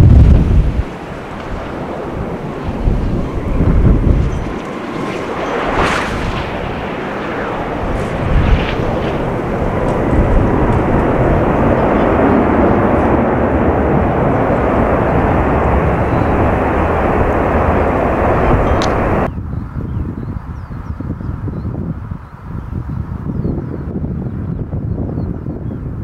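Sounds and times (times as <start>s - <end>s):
jet engines rushing: 0.0s - 19.3s.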